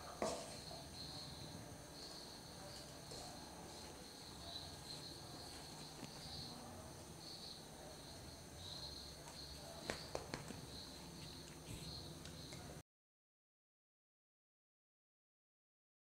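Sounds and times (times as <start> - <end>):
crickets chirping: 0.0 - 12.8.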